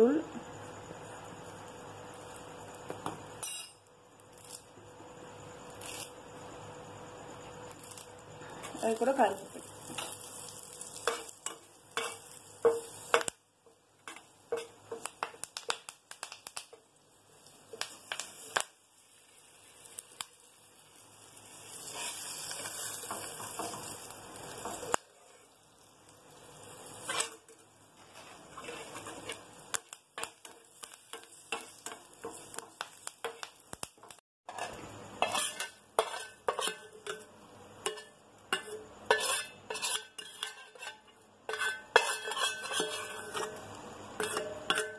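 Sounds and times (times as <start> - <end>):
leaves sizzling in hot oil: 0.0 - 44.9
metal spoon clinking on pan: 3.4 - 3.9, 10.9 - 13.3, 28.6 - 33.8, 34.5 - 44.9
spoon scraping pan: 8.6 - 13.3, 21.5 - 25.6, 26.7 - 33.5, 34.5 - 44.9.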